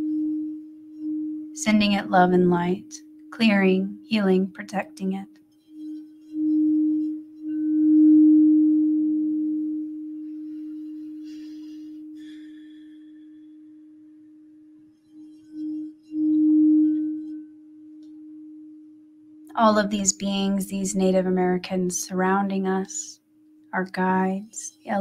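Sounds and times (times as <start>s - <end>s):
singing bowl ringing low tone: 0.0s - 3.4s, 5.2s - 20.2s.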